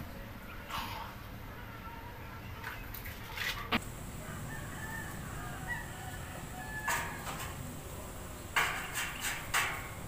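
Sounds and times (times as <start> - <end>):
chickens clucking: 3.8 - 9.9.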